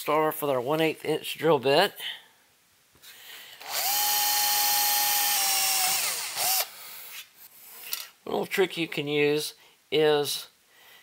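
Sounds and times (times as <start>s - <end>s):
cordless drill whining: 3.6s - 6.8s.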